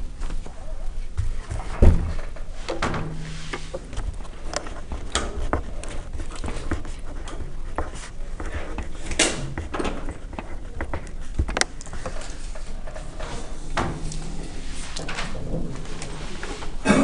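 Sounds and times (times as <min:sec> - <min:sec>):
pen writing on paper: 0:04.6 - 0:11.6.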